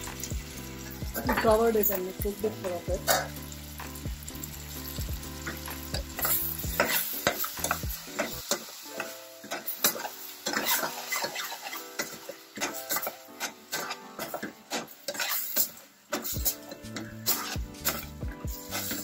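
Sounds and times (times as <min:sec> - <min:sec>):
vegetables sizzling: 0:00.0 - 0:19.0
metal spoon scraping a pot: 0:03.0 - 0:03.5, 0:05.4 - 0:08.6, 0:09.5 - 0:19.0.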